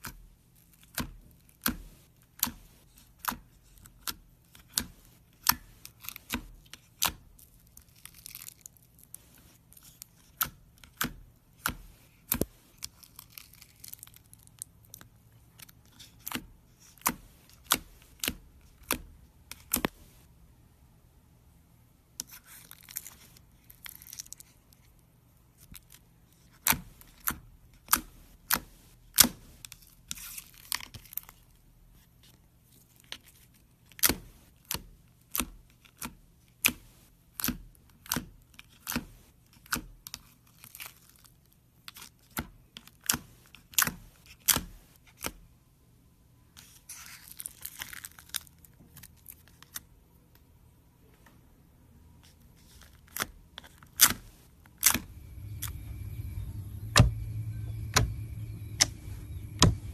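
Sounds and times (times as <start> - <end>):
fingers squeezing slime: 0.0 - 20.2
crackly crinkling: 5.8 - 11.0, 11.6 - 18.9, 22.2 - 27.4, 40.1 - 44.4, 46.6 - 50.4, 52.2 - 59.9.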